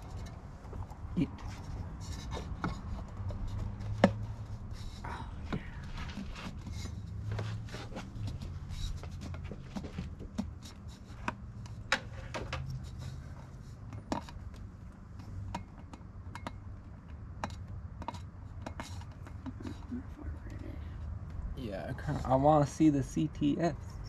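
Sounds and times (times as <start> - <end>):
clicks and knocks of car parts: 0.0 - 4.5, 8.2 - 19.8
low steady hum: 0.0 - 24.0.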